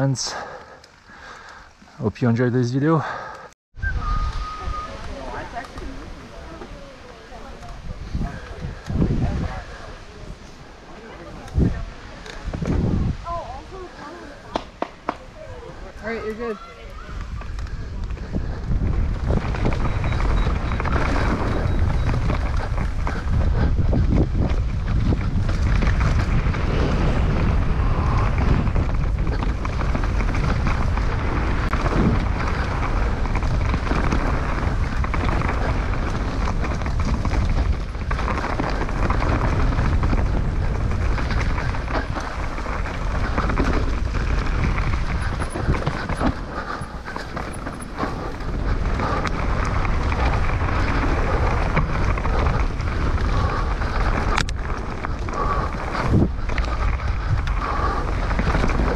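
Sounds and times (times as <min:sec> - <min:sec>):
wind buffeting microphone: 0:03.8 - 0:58.9
bike rattling and knocking: 0:17.2 - 0:58.9.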